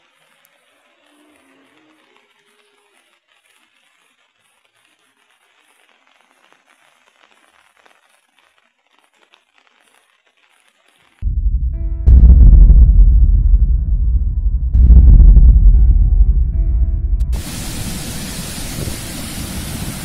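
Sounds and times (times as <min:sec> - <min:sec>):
faint hiss with crackling: 0:00.0 - 0:11.2, 0:17.3 - 0:20.0
music with heavy bass: 0:11.3 - 0:17.6.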